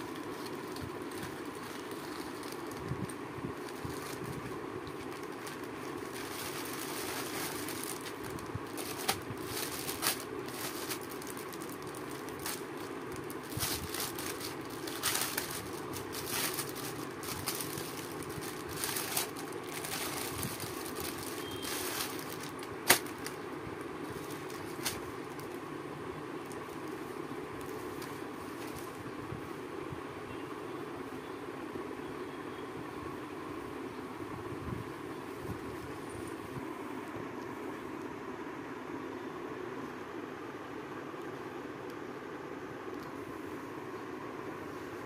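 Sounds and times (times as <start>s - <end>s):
plastic packaging crinkling: 0.0s - 25.6s, 26.4s - 29.1s
steady low hum: 0.0s - 45.0s.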